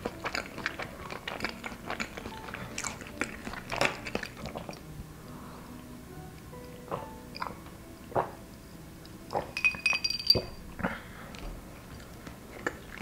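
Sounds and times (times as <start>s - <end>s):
drinking glass clinking: 7.3s - 7.6s, 9.3s - 10.6s.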